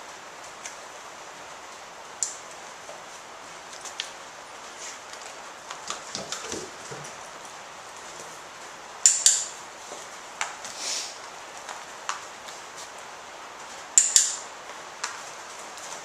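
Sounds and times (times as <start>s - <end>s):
dog-training clicker clicks: 9.0s - 9.5s, 14.0s - 14.4s.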